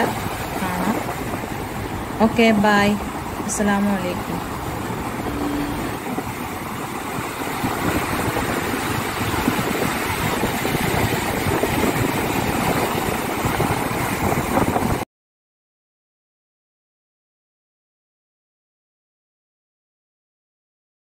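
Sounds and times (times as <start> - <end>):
sea surf washing onto shore: 0.0 - 15.0
wind buffeting microphone: 0.0 - 15.0.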